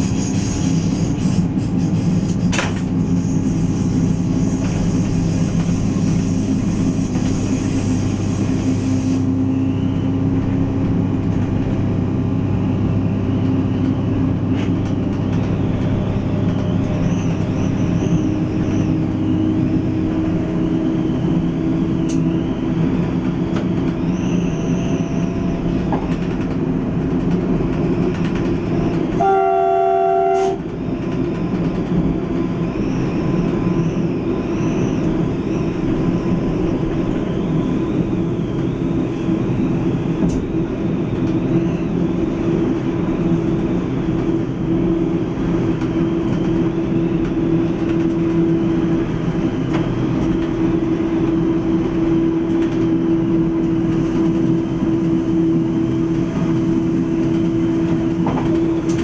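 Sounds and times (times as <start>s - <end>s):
rail noise: 0.0s - 59.0s
train engine and transmission hum: 0.0s - 59.0s
train horn: 29.2s - 30.7s.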